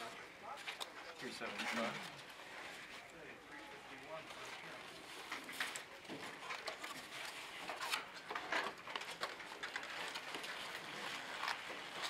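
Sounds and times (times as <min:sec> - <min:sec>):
paper rustling: 0:04.2 - 0:12.0.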